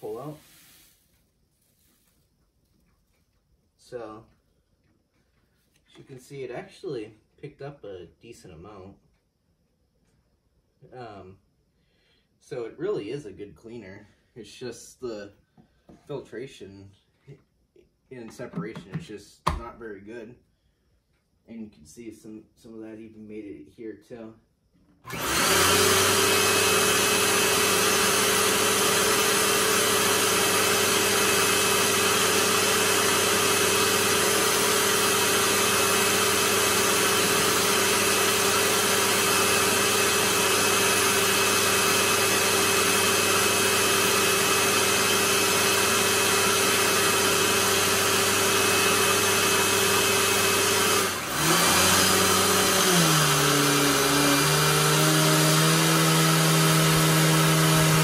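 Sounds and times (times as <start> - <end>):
vacuum cleaner motor whining: 25.1 - 58.0.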